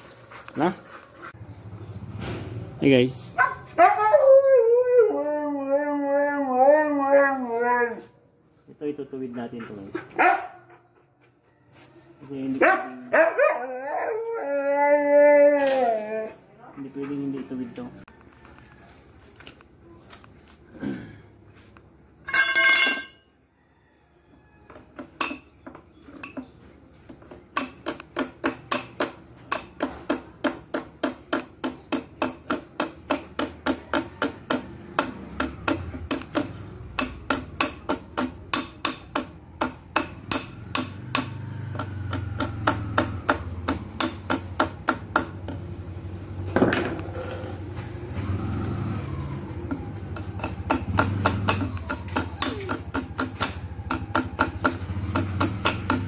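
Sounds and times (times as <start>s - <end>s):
hammer tapping on metal: 24.7s - 26.5s, 27.2s - 45.7s, 49.7s - 56.0s.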